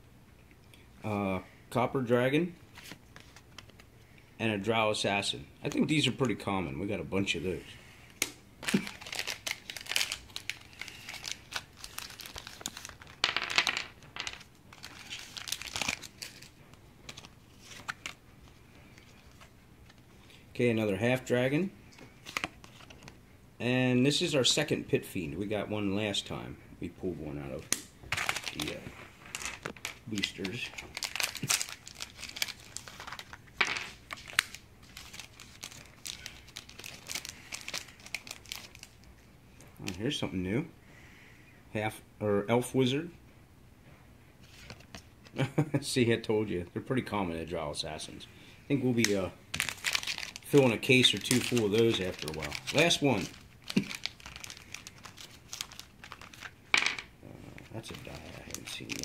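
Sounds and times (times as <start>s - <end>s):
foil pack crinkling and tearing: 8.6s - 13.2s, 14.7s - 18.2s, 28.1s - 39.0s, 48.9s - 56.6s, 57.8s - 59.0s.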